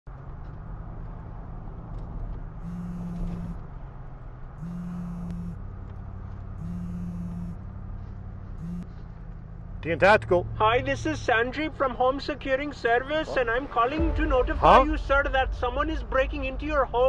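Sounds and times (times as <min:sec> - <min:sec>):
car cabin road rumble: 0:00.1 - 0:17.0
phone vibrating on a car seat: 0:02.6 - 0:03.6, 0:04.6 - 0:05.6, 0:06.6 - 0:07.6, 0:08.6 - 0:08.9.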